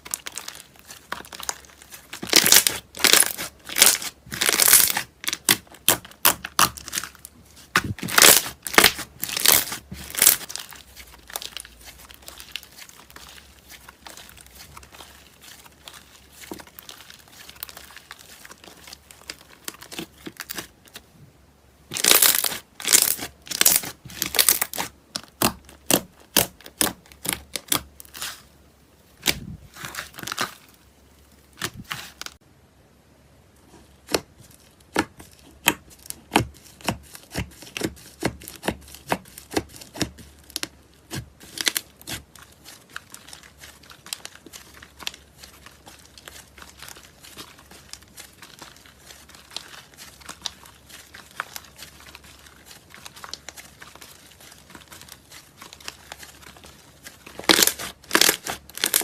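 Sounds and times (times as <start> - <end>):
slime crackling and popping: 0.0 - 21.0, 21.9 - 28.4, 29.2 - 30.8, 34.0 - 59.0.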